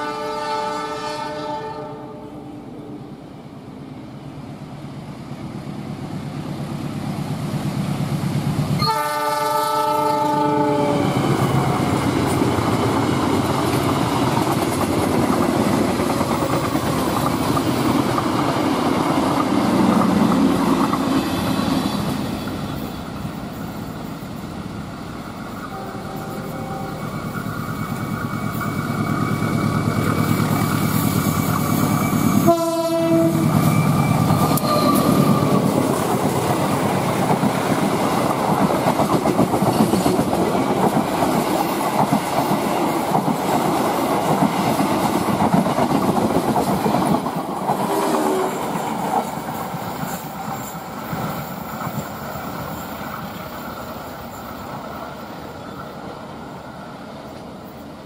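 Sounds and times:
locomotive horn chord: 0:00.0 - 0:02.5, 0:08.8 - 0:11.2, 0:25.7 - 0:27.0, 0:32.4 - 0:33.5
train rumbling on rails: 0:00.0 - 0:58.0.

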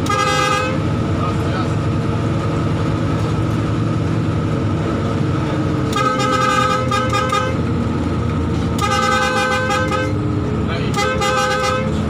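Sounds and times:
multi-tone air horn: 0:00.0 - 0:00.8, 0:05.9 - 0:07.6, 0:08.8 - 0:10.2, 0:10.9 - 0:12.0
bus diesel engine running: 0:00.0 - 0:12.0.

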